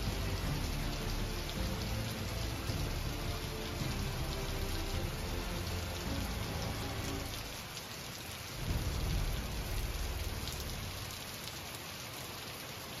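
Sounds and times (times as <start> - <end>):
heavy rain: 0.0 - 13.0
thunder rumbling: 8.6 - 11.4.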